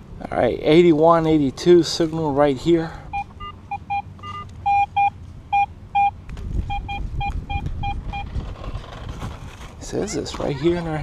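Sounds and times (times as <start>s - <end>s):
metal detector beeping: 3.1s - 8.4s.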